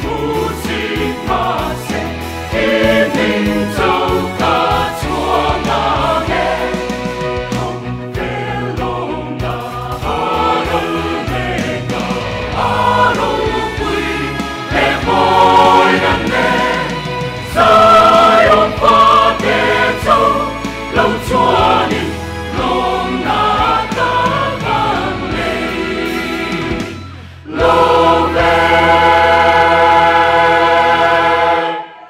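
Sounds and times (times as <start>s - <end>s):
mixed choir singing a hymn: 0.0s - 32.0s.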